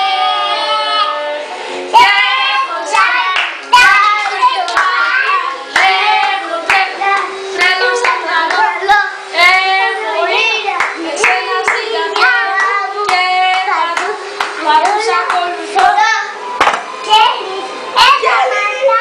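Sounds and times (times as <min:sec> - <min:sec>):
children singing: 0:00.0 - 0:16.4
hands clapping: 0:03.0 - 0:05.0, 0:05.7 - 0:08.7, 0:10.8 - 0:16.0, 0:16.6 - 0:16.9.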